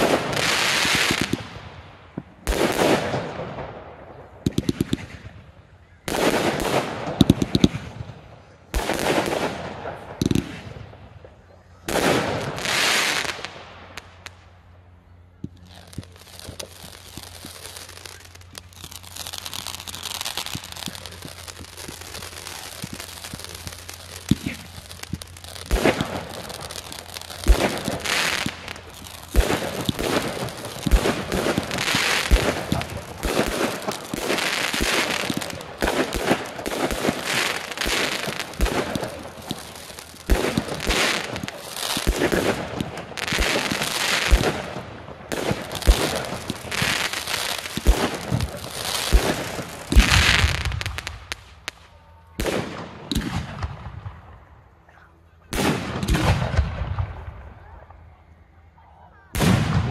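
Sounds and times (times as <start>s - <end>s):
firework crackle: 0.0s - 54.8s, 55.5s - 58.0s, 59.1s - 59.9s
fireworks bursting: 0.0s - 58.1s, 59.1s - 59.9s
firework shells launching: 15.4s - 51.8s.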